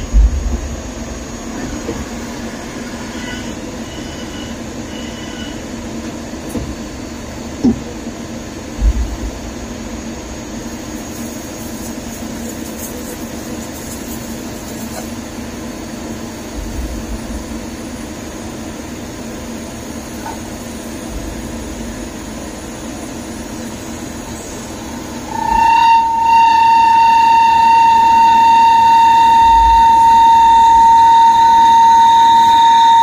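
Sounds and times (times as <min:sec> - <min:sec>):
machine hum: 0:00.0 - 0:33.0
coolant spray hiss: 0:10.8 - 0:15.3.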